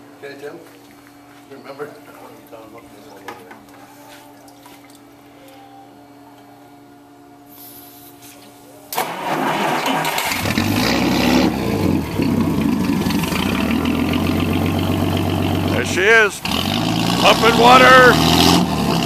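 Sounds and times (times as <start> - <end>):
engine starter cranking: 8.9 - 14.6
boat engine running: 10.2 - 19.0.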